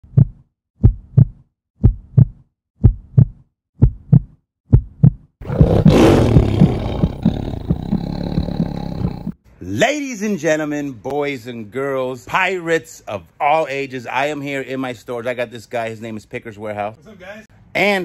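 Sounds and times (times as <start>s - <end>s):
deep heartbeat-like thumps: 0.0s - 9.4s.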